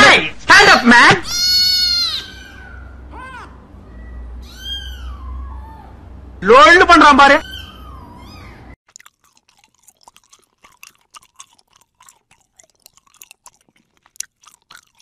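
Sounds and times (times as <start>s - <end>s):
kitten sucking from bottle: 8.9s - 15.0s.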